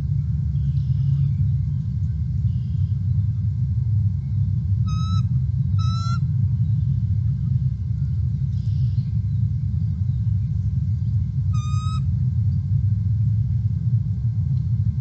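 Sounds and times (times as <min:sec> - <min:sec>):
low rumble: 0:00.0 - 0:15.0
wavering bird calls: 0:00.1 - 0:01.8, 0:04.8 - 0:07.1, 0:08.5 - 0:10.6, 0:11.4 - 0:12.2.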